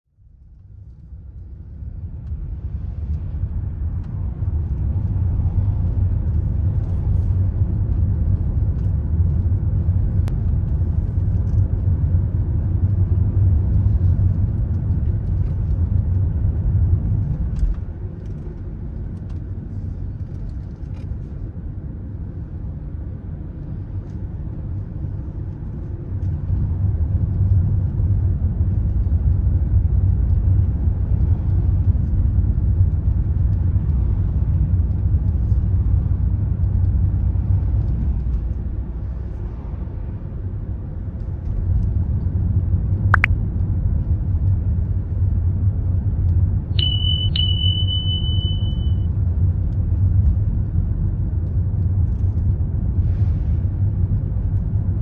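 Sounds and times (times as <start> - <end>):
car engine and road noise: 0.2 - 55.0.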